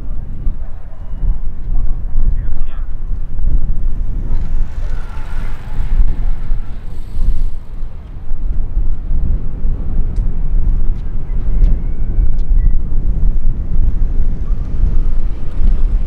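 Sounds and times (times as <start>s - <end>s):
jet aircraft rumble overhead: 3.0s - 11.3s
faint jet engine whine: 4.3s - 8.2s.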